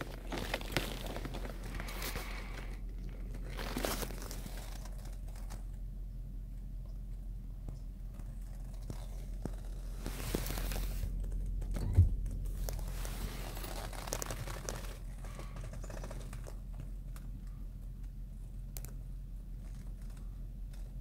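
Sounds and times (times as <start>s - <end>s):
low hum: 0.0s - 21.0s
thump: 11.8s - 12.2s.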